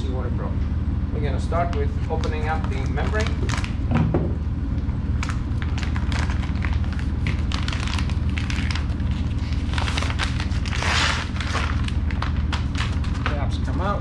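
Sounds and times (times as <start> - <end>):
low hum: 0.0 - 14.0
plastic wrapping crinkling: 1.8 - 3.9, 5.1 - 13.8.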